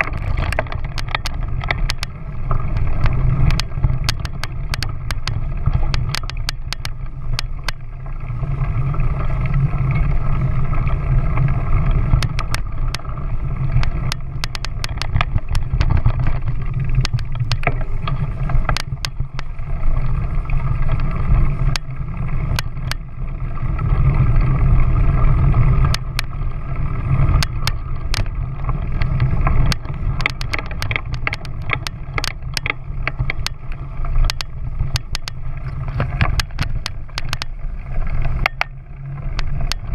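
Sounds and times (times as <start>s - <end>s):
camera mount clicks and rattles: 0.0s - 2.2s, 3.0s - 7.8s, 12.2s - 13.0s, 13.8s - 16.4s, 27.4s - 28.3s, 29.0s - 33.6s, 34.2s - 35.4s, 36.0s - 37.5s
vehicle low rumble: 0.0s - 39.9s.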